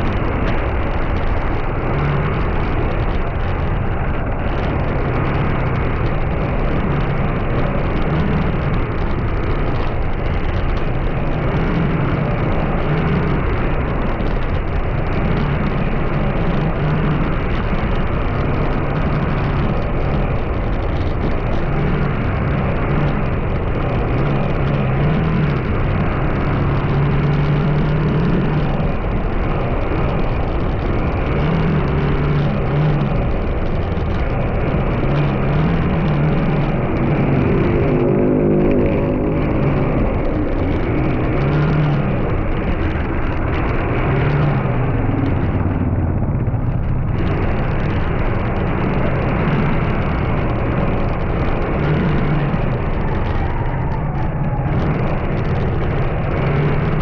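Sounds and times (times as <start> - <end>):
vehicle engine and road noise: 0.0 - 57.0.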